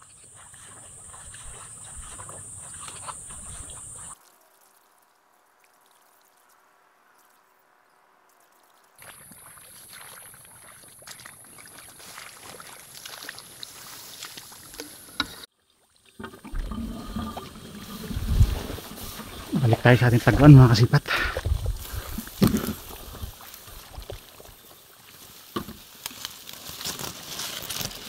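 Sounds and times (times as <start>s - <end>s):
brushing and handling noise: 0.0s - 4.2s, 11.7s - 15.4s, 16.8s - 20.9s, 21.7s - 28.0s
footsteps wading through water: 0.0s - 6.6s, 8.4s - 28.0s
vegetation rustling: 9.0s - 15.2s, 16.7s - 28.0s
steady high-pitched hiss: 16.9s - 26.4s.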